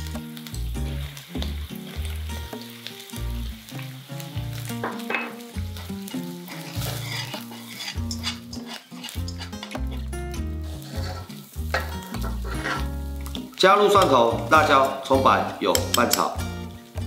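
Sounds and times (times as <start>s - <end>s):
background music with bass: 0.0s - 2.6s, 3.2s - 3.7s, 4.4s - 4.9s, 5.6s - 7.3s, 9.2s - 17.0s
food sizzling in hot oil: 0.0s - 17.0s
utensil stirring in a wok: 4.6s - 15.1s.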